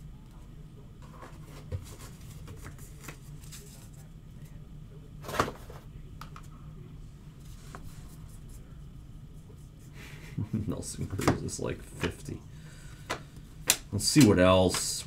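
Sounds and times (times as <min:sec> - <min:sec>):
steady low hum: 0:00.0 - 0:15.0
cards rustling and clicking: 0:01.3 - 0:04.0.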